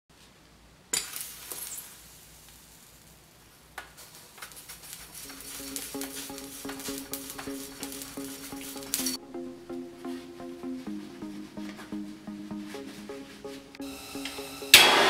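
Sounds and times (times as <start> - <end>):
plastic crackling and popping: 3.7 - 9.2
music: 5.2 - 15.0.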